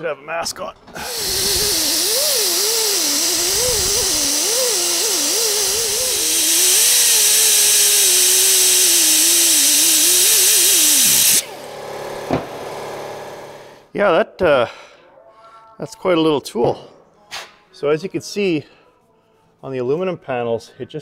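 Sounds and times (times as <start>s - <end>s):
bristle disc hissing on metal: 1.0s - 11.4s
die grinder whining: 1.0s - 13.6s.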